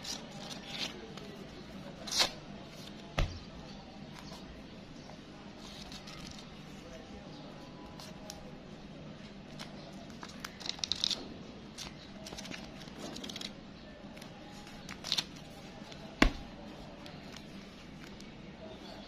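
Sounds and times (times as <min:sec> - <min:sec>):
banknotes rustling and crackling: 0:09.5 - 0:13.6.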